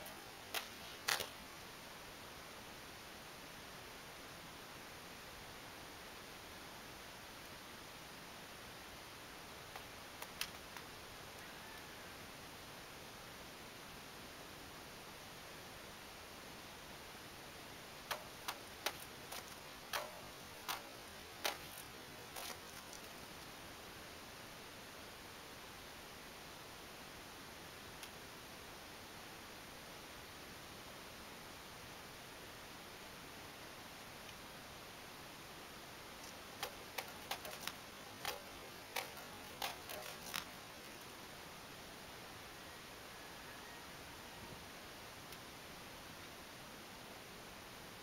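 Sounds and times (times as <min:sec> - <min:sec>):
cut pieces falling: 0:00.0 - 0:01.4, 0:18.1 - 0:23.5, 0:36.2 - 0:41.1
sword cutting bamboo cracks: 0:18.1 - 0:23.2, 0:36.2 - 0:41.0.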